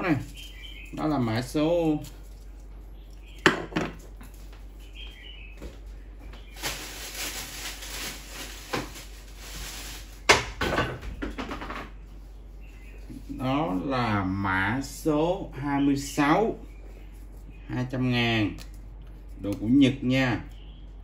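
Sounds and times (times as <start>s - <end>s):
rustling and scraping: 0.0s - 10.3s, 10.9s - 14.0s.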